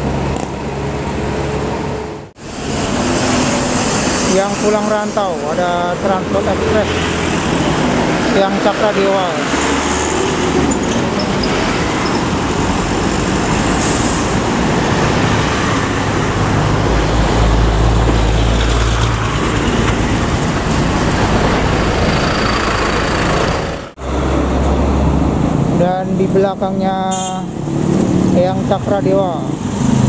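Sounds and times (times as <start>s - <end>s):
road traffic passing: 0.0s - 30.0s
diesel bus engine rumble: 10.0s - 30.0s.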